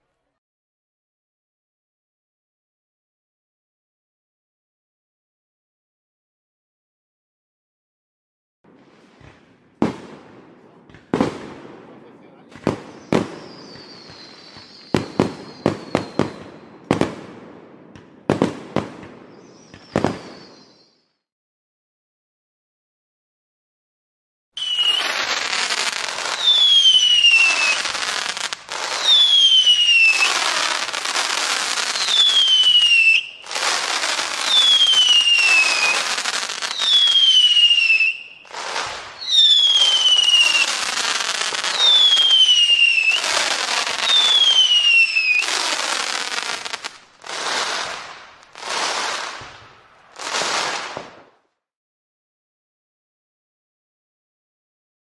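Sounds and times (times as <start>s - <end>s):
firework bursts: 8.7s - 21.0s, 24.6s - 51.5s
firework whistles falling in pitch: 12.7s - 17.0s, 19.3s - 21.2s, 24.6s - 51.2s.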